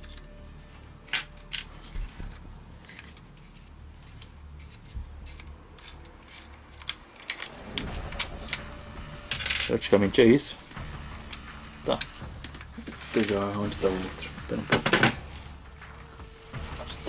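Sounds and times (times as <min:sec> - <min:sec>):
clicks and rattles of gun parts: 0:01.0 - 0:07.5.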